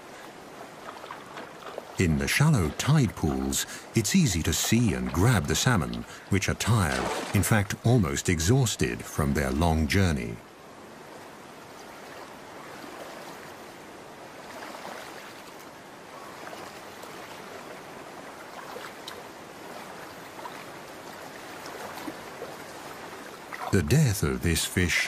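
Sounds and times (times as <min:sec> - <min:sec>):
shallow water running: 0:00.0 - 0:09.0.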